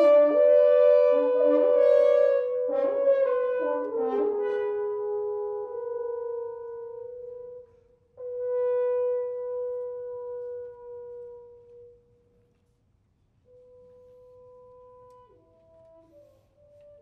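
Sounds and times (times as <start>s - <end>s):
brass trio holding a note: 0.0s - 12.0s.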